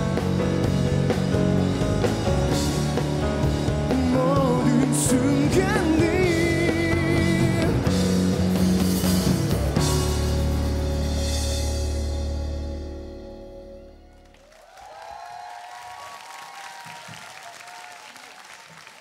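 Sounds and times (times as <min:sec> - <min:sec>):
rock band playing: 0:00.0 - 0:14.3.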